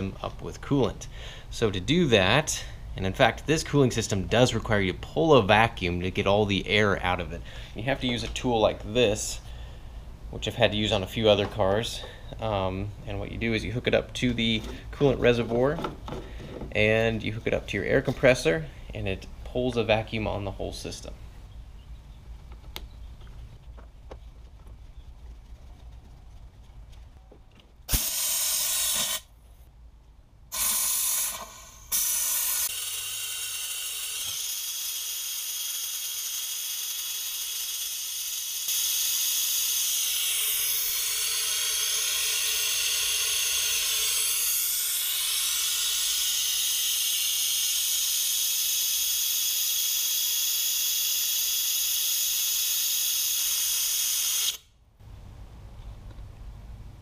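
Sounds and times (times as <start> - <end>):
compressed air hissing: 27.9 - 29.3, 30.5 - 33.0, 36.9 - 54.6
short air blasts: 27.9 - 29.3, 30.5 - 34.6.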